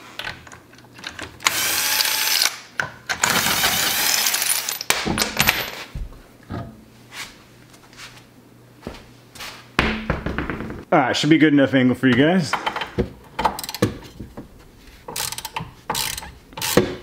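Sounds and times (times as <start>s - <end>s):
metallic clicks and knocks: 12.5s - 14.4s, 15.1s - 17.0s
impact wrench hammering: 15.1s - 17.0s.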